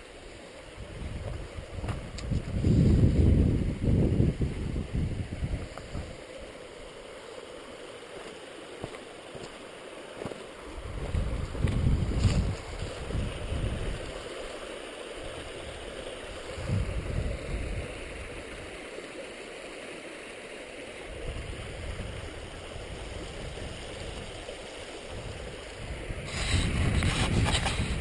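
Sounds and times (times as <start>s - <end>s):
creek running over rocks: 0.0s - 28.0s
wind rumbling on microphone: 0.6s - 6.4s, 10.7s - 14.6s, 15.2s - 18.8s, 21.1s - 28.0s.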